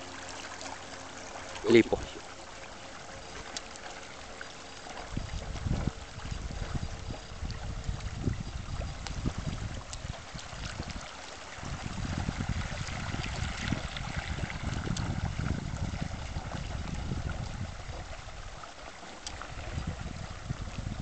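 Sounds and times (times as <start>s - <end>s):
choppy water lapping: 0.0s - 21.0s
wind buffeting microphone: 5.0s - 18.7s, 19.3s - 21.0s.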